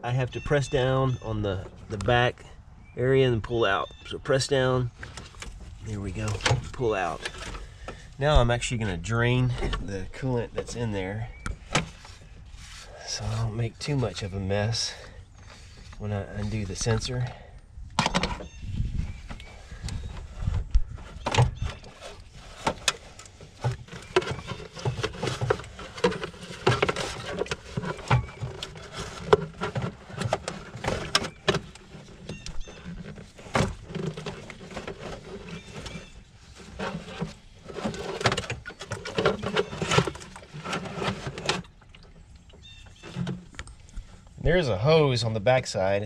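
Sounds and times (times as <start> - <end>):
plastic knocks and rattles: 19.1 - 43.8.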